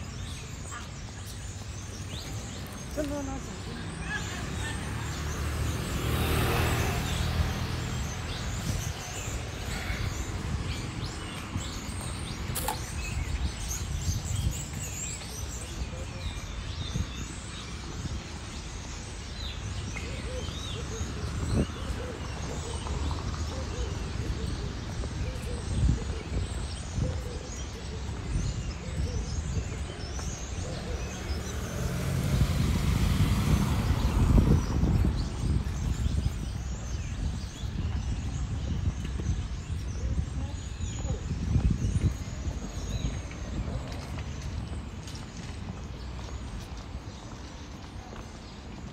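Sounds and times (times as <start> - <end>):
birds chirping: 0.0 - 48.9
low traffic rumble: 0.0 - 48.9
car passing close by: 4.3 - 9.0, 31.0 - 35.6.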